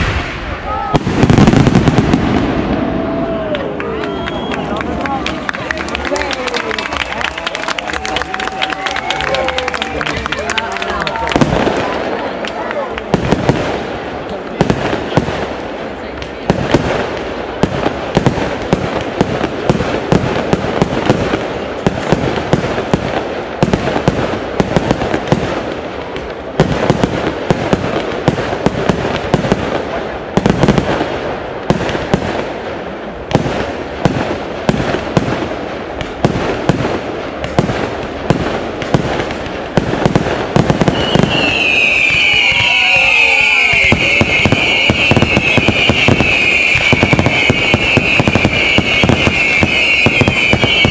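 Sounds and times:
rising firework whistle: 0:00.0 - 0:11.5, 0:40.6 - 0:50.9
fireworks bursting and crackling: 0:00.0 - 0:50.9.

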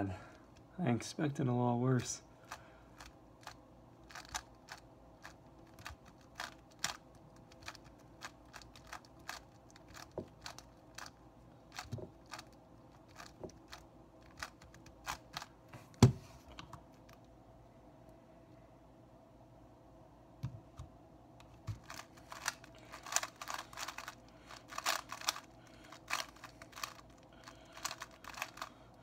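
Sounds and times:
puzzle cube layers clicking: 0:21.8 - 0:28.7.

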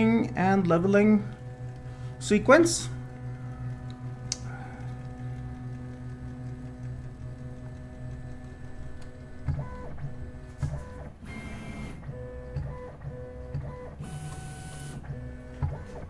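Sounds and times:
stepper motors whining: 0:00.0 - 0:16.0.

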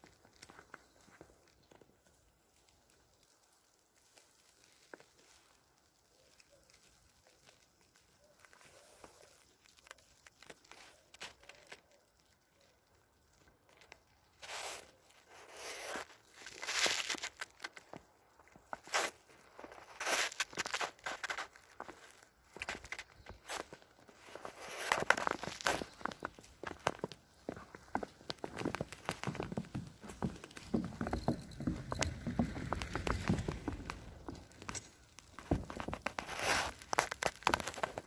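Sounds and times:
footsteps crunching in snow: 0:14.4 - 0:38.0.

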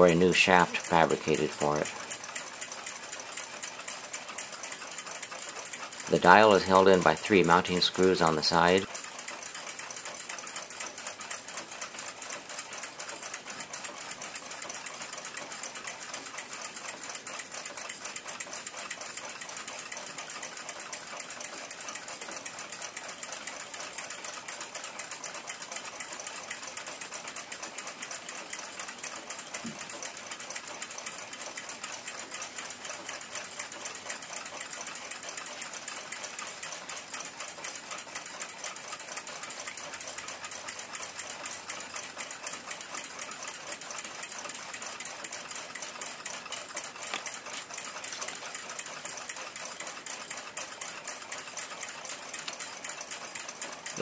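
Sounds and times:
fast mechanical clicking: 0:00.0 - 0:54.0.

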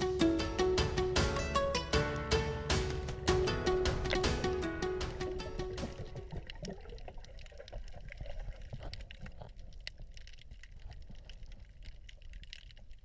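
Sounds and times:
low underwater rumble: 0:03.2 - 0:13.0
small clicks and crackles: 0:05.8 - 0:13.0.

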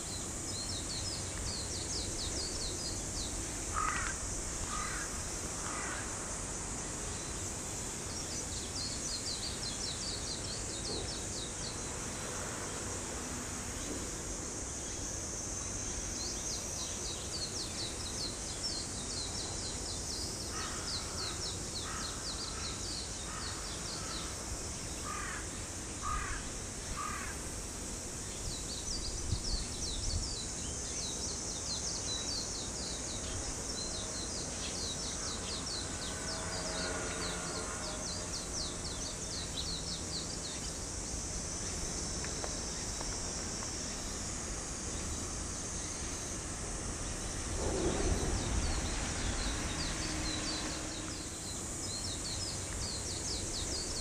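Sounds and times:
outdoor background noise: 0:00.0 - 0:54.0
low thumps: 0:47.2 - 0:51.3.

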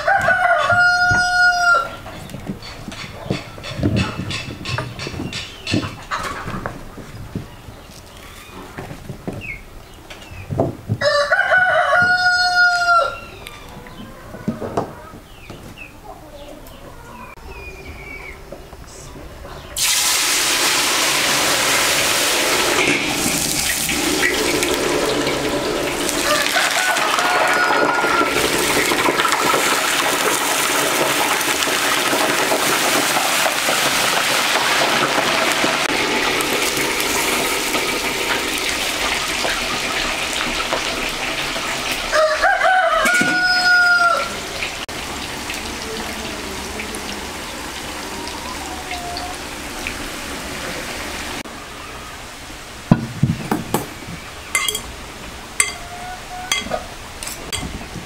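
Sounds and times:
rooster crowing: 0:00.0 - 0:02.0, 0:11.0 - 0:13.4, 0:26.1 - 0:28.6, 0:42.1 - 0:44.5, 0:47.7 - 0:49.7
potatoes sizzling in oil: 0:19.8 - 0:48.2
fork clinking against glass bowl: 0:54.6 - 0:54.9, 0:55.6 - 0:55.9, 0:56.5 - 0:57.7.

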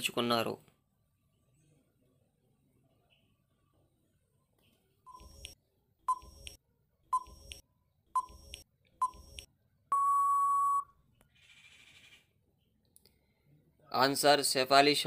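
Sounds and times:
short countdown beeps: 0:09.9 - 0:10.9
long steady beep: 0:09.9 - 0:11.0.

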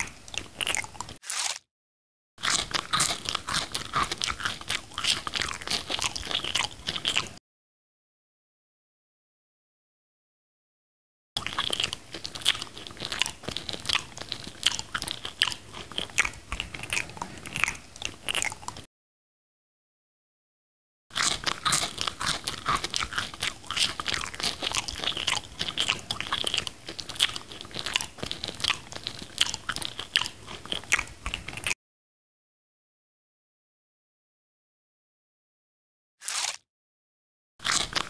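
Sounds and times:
mango being bitten and chewed: 0:00.0 - 0:01.7, 0:02.4 - 0:07.4, 0:11.4 - 0:18.9, 0:21.1 - 0:31.8, 0:36.2 - 0:36.6, 0:37.6 - 0:38.0.

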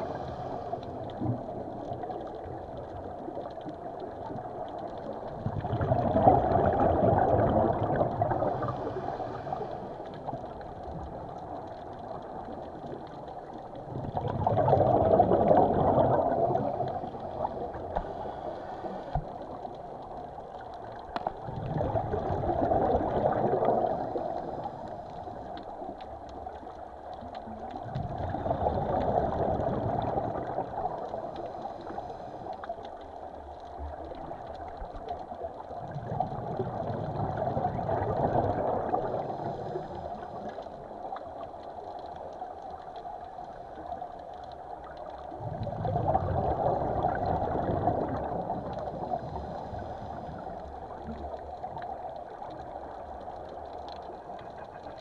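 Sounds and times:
exhaled bubbles rushing underwater: 0:00.0 - 0:55.0.

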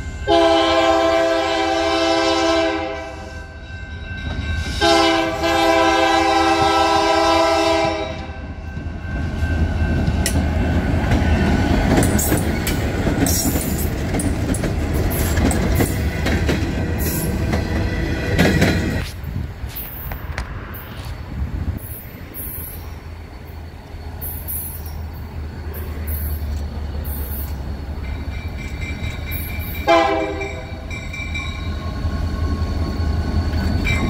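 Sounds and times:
locomotive air horn: 0:00.3 - 0:03.6, 0:04.7 - 0:08.5, 0:29.8 - 0:30.8
train wheels clicking on rails: 0:04.2 - 0:34.0
diesel engine rumble: 0:23.0 - 0:29.3.

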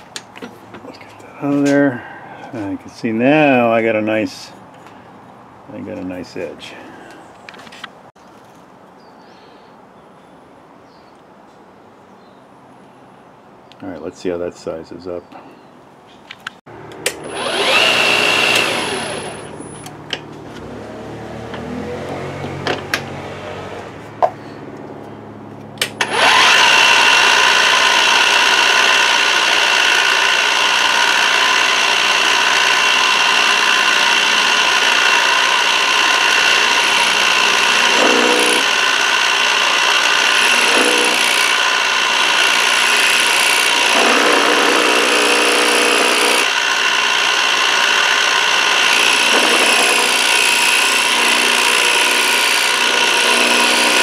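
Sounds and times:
sharp click: 0:16.3 - 0:17.3, 0:25.7 - 0:26.1
milling machine cutting metal: 0:17.0 - 0:19.8, 0:26.0 - 0:54.0.

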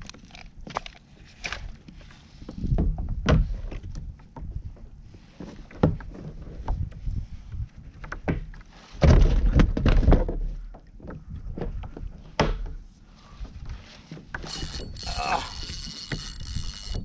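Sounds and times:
fishing reel line paying out: 0:14.4 - 0:17.0.

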